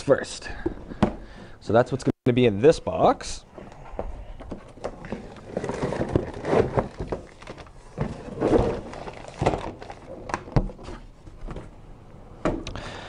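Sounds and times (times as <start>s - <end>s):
plastic bags rustling: 3.5s - 11.7s
cardboard box being handled: 4.0s - 10.0s.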